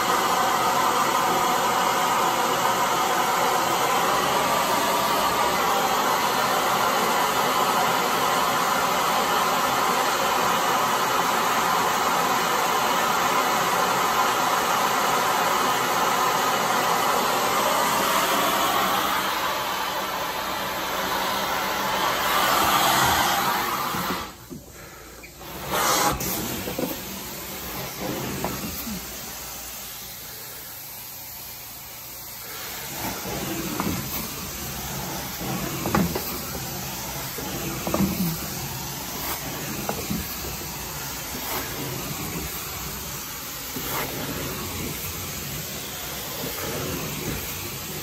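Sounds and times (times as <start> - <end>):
vacuum wand hissing: 0.0 - 48.0.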